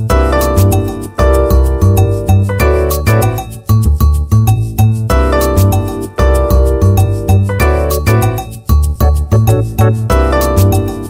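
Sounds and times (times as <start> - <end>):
music with steady beat and bass: 0.0 - 11.0.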